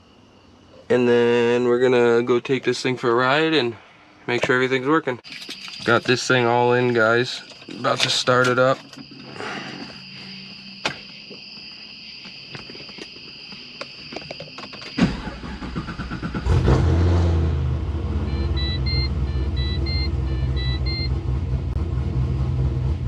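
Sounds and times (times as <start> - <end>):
car engine starting and idling: 14.9 - 23.0
high electronic tone: 18.2 - 21.2
short electronic beeps: 18.3 - 21.2.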